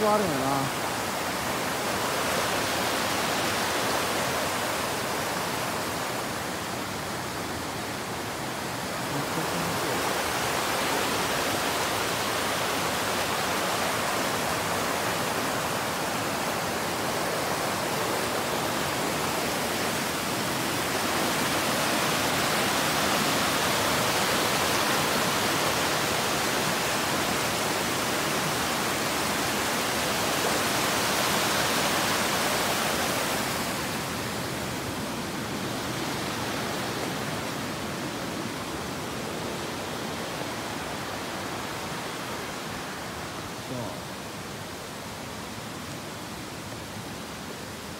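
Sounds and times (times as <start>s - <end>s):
stream rushing over rocks: 0.0s - 47.9s.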